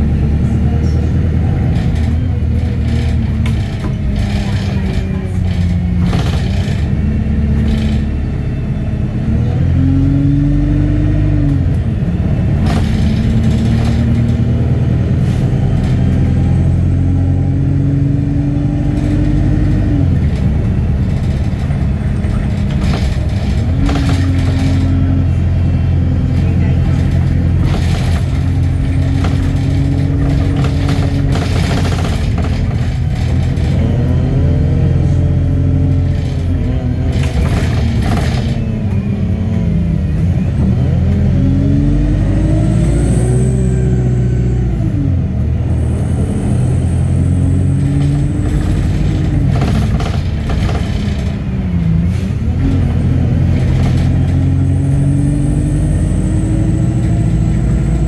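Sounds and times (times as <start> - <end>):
bus engine revving: 0.0 - 58.0
interior rattles: 18.5 - 38.8, 47.8 - 51.6.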